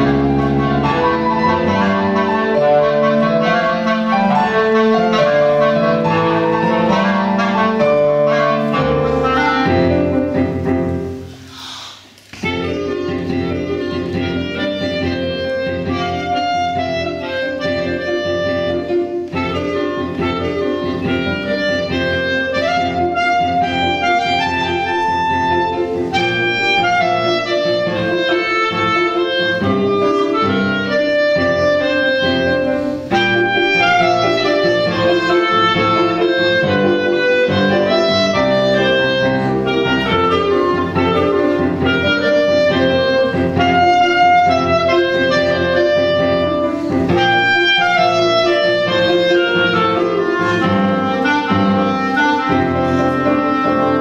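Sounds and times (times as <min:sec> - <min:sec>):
clarinet playing quick melody: 0:00.0 - 0:54.0
grand piano accompaniment: 0:00.0 - 0:54.0.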